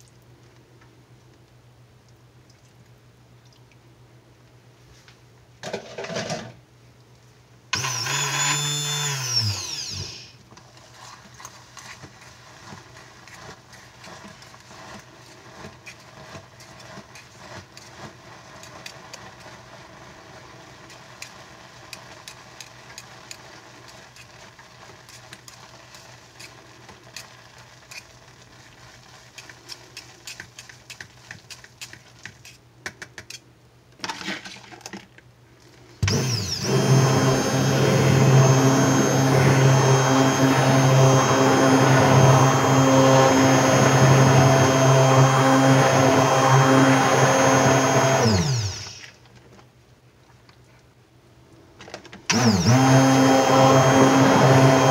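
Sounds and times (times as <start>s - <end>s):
stick blender humming: 7.8s - 10.9s, 11.8s - 27.3s, 36.0s - 49.1s, 52.3s - 54.9s
whisk clicking against a bowl: 13.3s - 19.6s, 20.9s - 24.4s, 28.8s - 33.4s.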